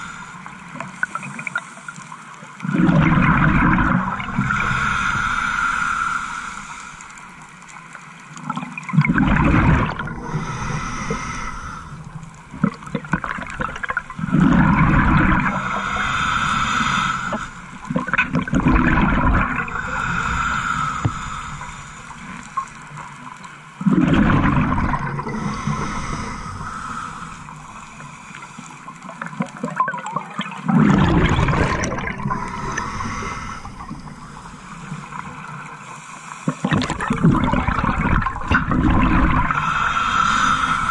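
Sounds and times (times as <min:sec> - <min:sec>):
exhaled bubbles rushing: 0:02.7 - 0:04.8, 0:08.9 - 0:20.2, 0:23.8 - 0:28.0, 0:30.6 - 0:34.4, 0:36.7 - 0:40.1
regulator hiss: 0:15.4 - 0:17.9.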